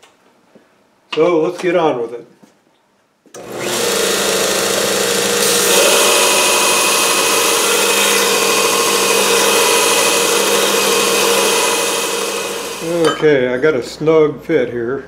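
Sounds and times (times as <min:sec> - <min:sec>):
belt grinder motor hum: 0:03.4 - 0:13.0
steel grinding against belt: 0:04.0 - 0:13.0.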